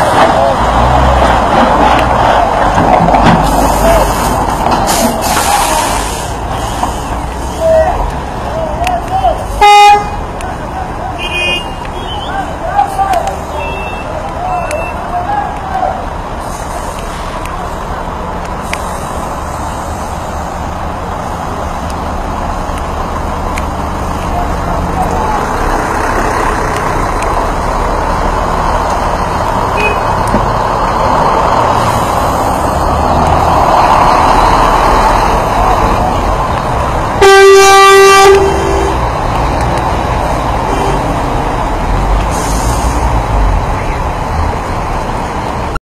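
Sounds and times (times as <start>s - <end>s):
trucks and buses idling: 0.0s - 45.8s
vehicle horn: 9.6s - 10.2s, 11.2s - 12.2s, 37.2s - 39.0s.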